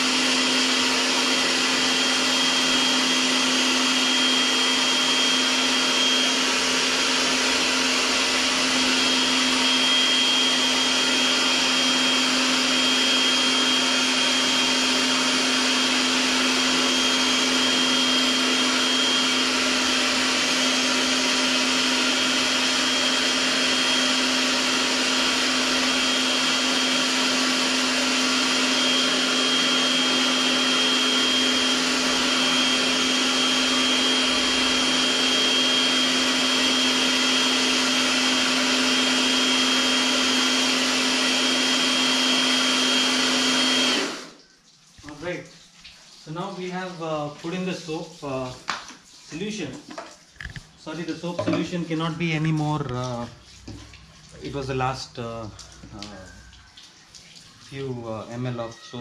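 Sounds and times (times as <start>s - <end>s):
pressure washer motor hum: 0.0s - 44.4s.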